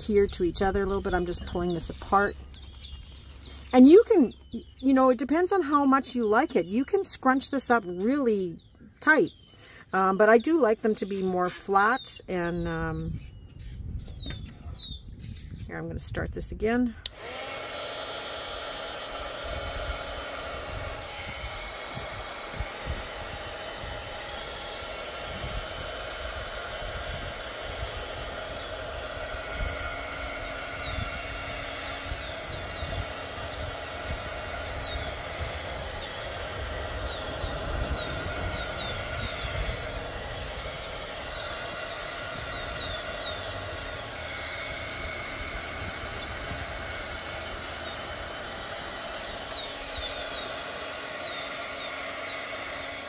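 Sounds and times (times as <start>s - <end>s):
heat gun fan hiss and motor whine: 16.6s - 53.0s.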